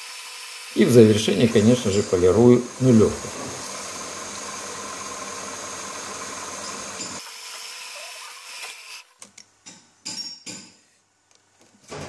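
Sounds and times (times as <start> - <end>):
lathe grinding hiss with whine: 0.0 - 9.0.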